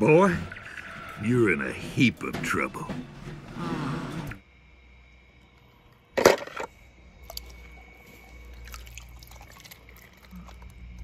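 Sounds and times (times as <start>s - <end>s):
faint water drips: 7.2s - 11.0s.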